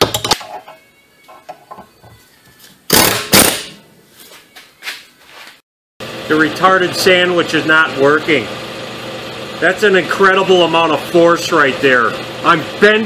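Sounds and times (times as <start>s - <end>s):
air impact wrench: 2.9s - 3.8s.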